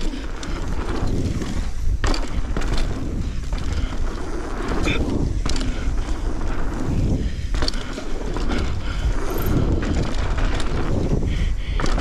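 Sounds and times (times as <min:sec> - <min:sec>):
bike clattering: 0:00.0 - 0:12.0
bike tyres rumbling on dirt: 0:00.0 - 0:12.0
wind buffeting microphone: 0:00.0 - 0:12.0.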